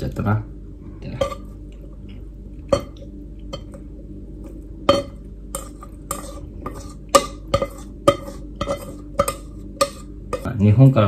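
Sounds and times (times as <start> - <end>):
utensil clinking on metal saucepan: 4.9 - 10.5.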